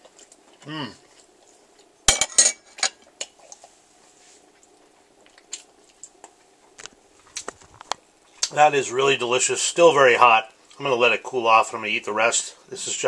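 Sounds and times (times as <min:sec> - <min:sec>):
person chewing: 0:00.0 - 0:02.0, 0:03.0 - 0:03.8, 0:04.4 - 0:08.6.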